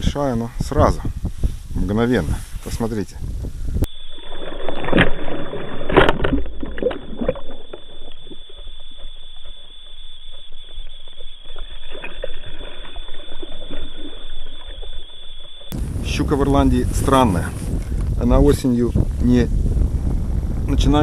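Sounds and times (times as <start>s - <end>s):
water sloshing around boat: 4.0s - 15.7s.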